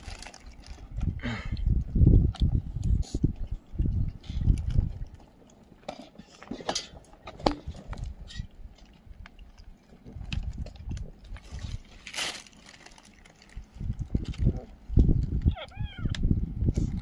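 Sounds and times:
cats eating from plastic trough: 0.0s - 12.0s.

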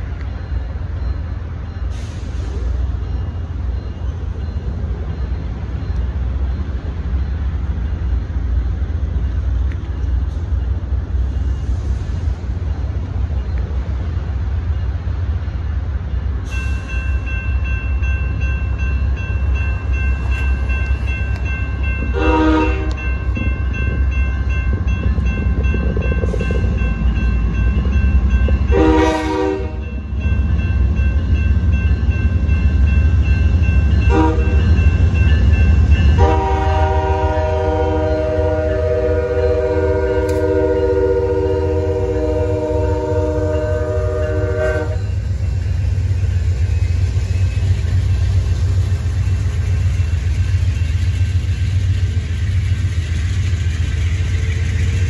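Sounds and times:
railroad crossing bell ringing: 0.0s - 55.0s
train horn blasts: 22.1s - 23.1s, 28.7s - 30.0s, 34.1s - 34.7s, 36.2s - 45.1s.

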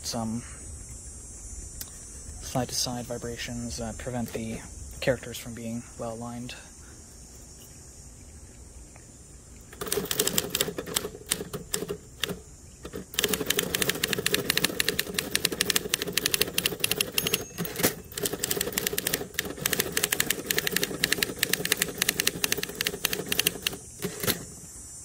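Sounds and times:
manual typewriter typing fast: 9.8s - 24.6s.

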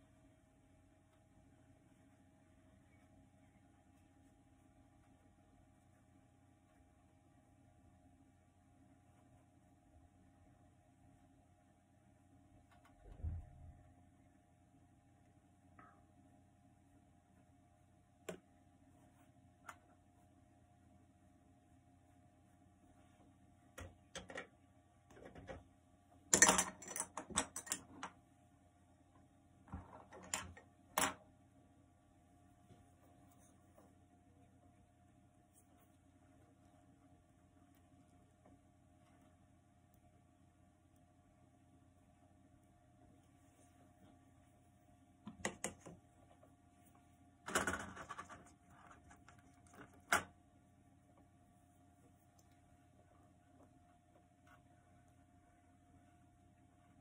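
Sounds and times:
faint steady hum: 0.0s - 57.0s.

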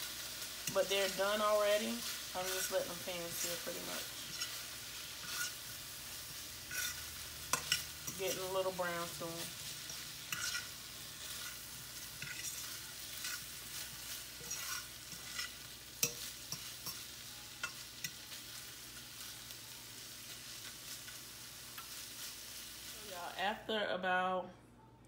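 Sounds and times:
shrimp sizzling in a skillet: 0.0s - 23.7s
utensil scraping and tapping pan: 10.3s - 10.7s, 12.2s - 13.4s, 14.4s - 17.0s.

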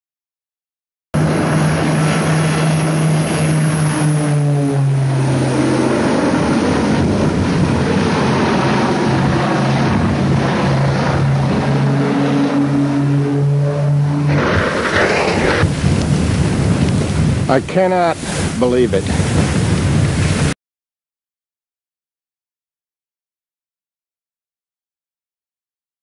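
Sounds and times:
propeller aircraft droning: 1.2s - 20.6s.

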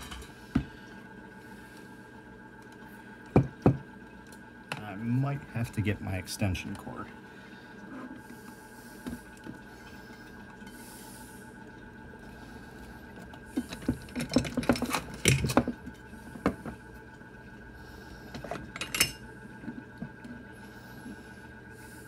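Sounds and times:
motor hum and whine: 0.0s - 22.0s.

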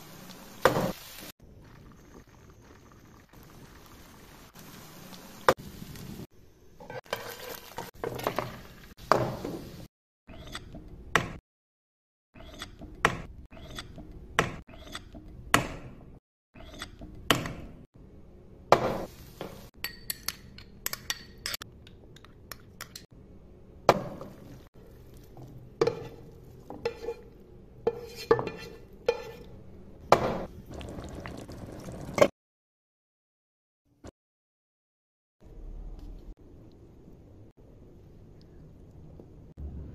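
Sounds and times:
sizzling in frying pan: 0.0s - 1.3s, 3.4s - 9.9s
metal spoon clinking on glass bowl: 19.8s - 21.6s.

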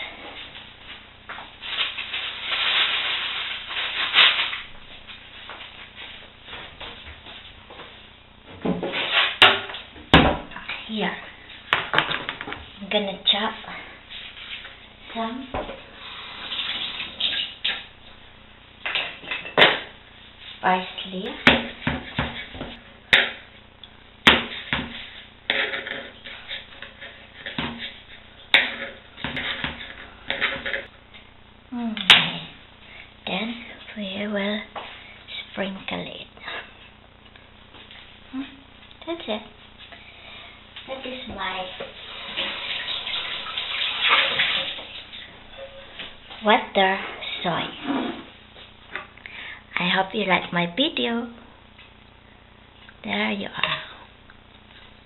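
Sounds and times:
crackly rustling: 0.4s - 8.1s.

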